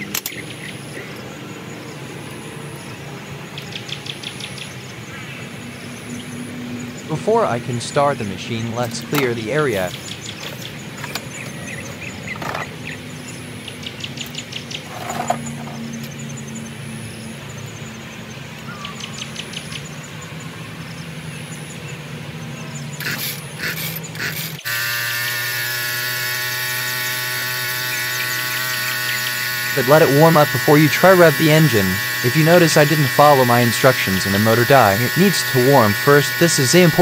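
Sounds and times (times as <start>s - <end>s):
chainsaw engine idling: 7.0s - 13.4s, 23.0s - 37.0s
starter cord pulls: 8.8s - 12.8s, 14.8s - 16.2s, 23.0s - 37.0s.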